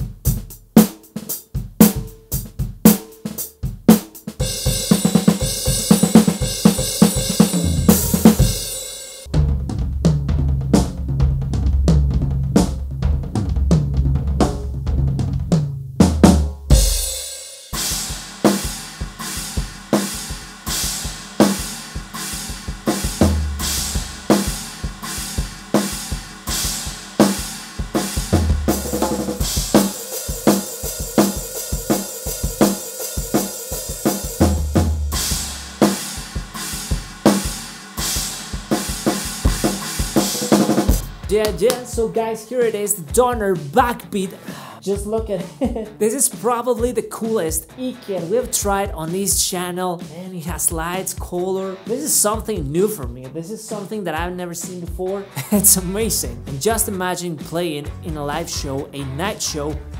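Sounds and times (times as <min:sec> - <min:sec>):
electronic drum kit groove: 0:00.0 - 0:59.9
crash cymbals: 0:04.4 - 0:09.3
backing track bass line: 0:05.7 - 0:08.7, 0:09.3 - 0:17.0, 0:23.2 - 0:24.3, 0:28.2 - 0:29.5, 0:40.2 - 0:49.2, 0:55.4 - 0:57.2, 0:57.9 - 0:59.9.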